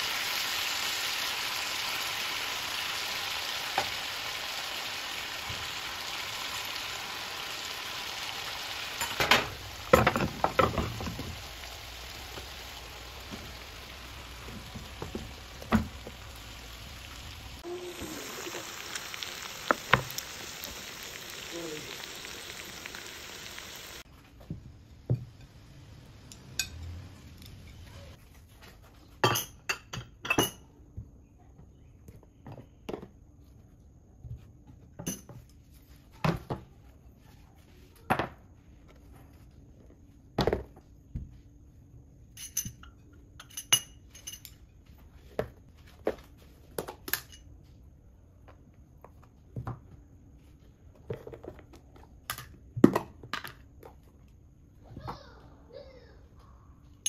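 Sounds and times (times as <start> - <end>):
food sizzling on a platter: 0.0 - 24.1
cutlery and dishes clinking: 42.4 - 44.6.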